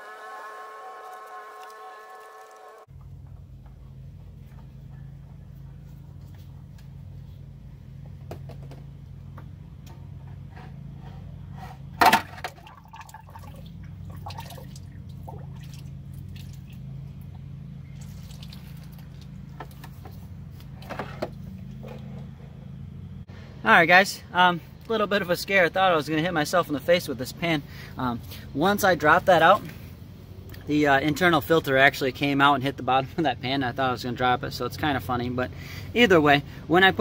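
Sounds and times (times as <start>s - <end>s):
fluid splashing and dripping: 12.6s - 16.9s, 17.9s - 19.4s.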